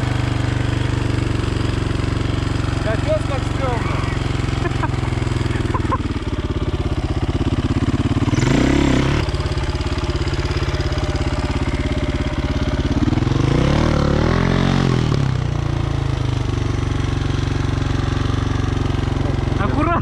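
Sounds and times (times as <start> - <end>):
motorcycle engine idling and revving: 0.0 - 20.0.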